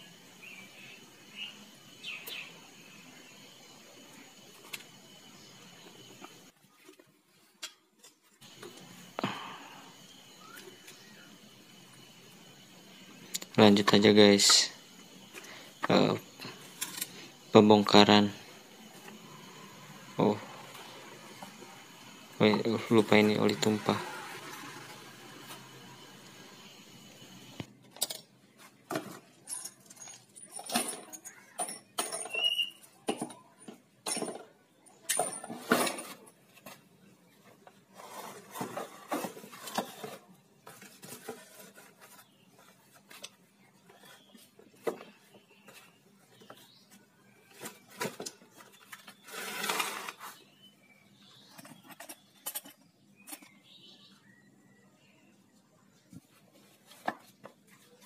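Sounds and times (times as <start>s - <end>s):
metallic clinks and knocks: 29.3s - 34.5s
cardboard scraping and rustling: 37.8s - 43.2s, 47.5s - 50.5s.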